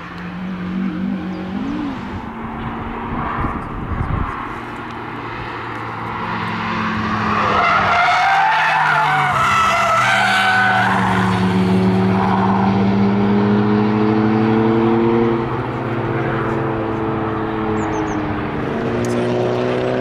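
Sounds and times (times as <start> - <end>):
car engine revving under load: 0.0 - 20.0
tyres squealing: 7.3 - 11.4.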